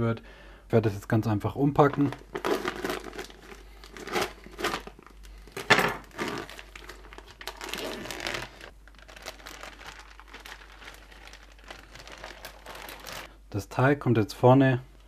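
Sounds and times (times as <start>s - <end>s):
plastic bags crinkling: 1.8s - 13.3s.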